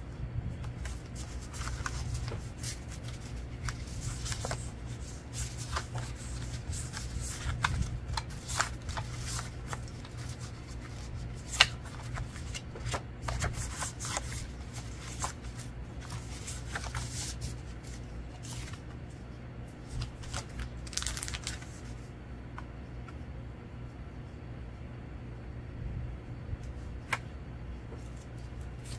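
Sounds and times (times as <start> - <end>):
low steady hum: 0.0 - 28.9
paper cards being flipped: 0.6 - 18.9, 19.8 - 22.1.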